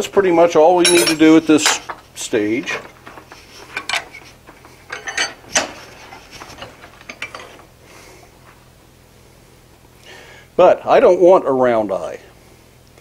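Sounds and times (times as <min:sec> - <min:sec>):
metal tongs and vise clanking: 0:00.8 - 0:02.0, 0:02.6 - 0:07.6.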